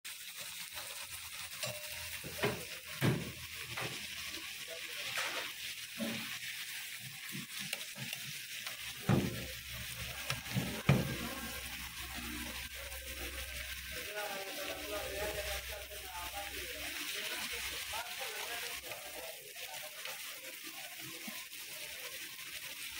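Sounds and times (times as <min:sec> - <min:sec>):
fish sizzling in hot oil: 0:00.0 - 0:22.9
metal spatula scraping pan: 0:00.3 - 0:04.4, 0:05.0 - 0:06.5, 0:07.2 - 0:12.7.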